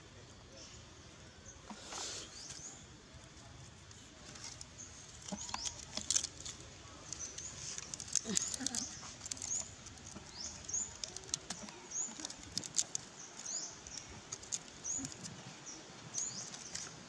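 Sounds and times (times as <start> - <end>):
monkey chewing food: 4.2 - 15.5
bird chirping: 4.4 - 17.0.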